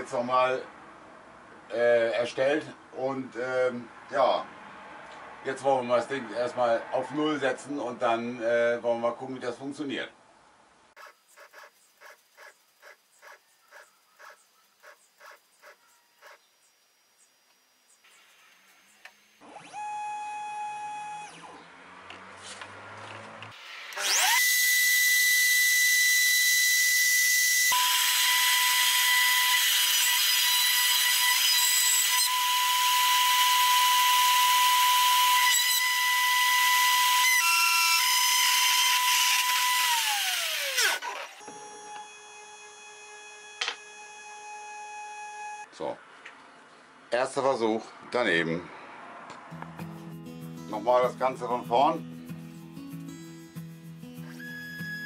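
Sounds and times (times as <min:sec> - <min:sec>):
stepper motors whining: 0:11.0 - 0:21.6, 0:23.8 - 0:45.6
spindle motor high whine: 0:15.8 - 0:21.6, 0:23.9 - 0:30.0, 0:31.1 - 0:45.7.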